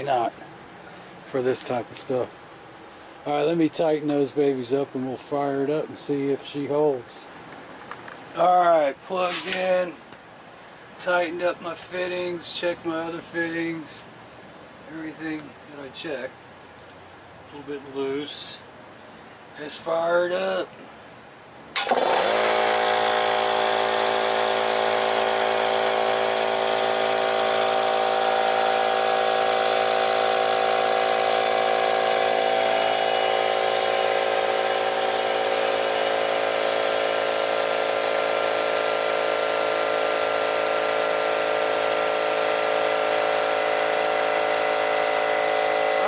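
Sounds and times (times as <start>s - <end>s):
air compressor running: 21.8s - 46.0s.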